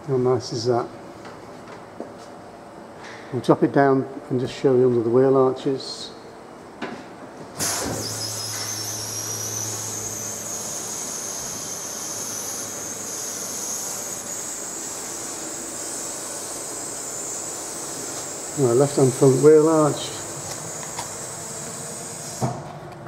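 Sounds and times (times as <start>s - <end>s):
vehicle lift hissing and whining: 7.6s - 22.6s.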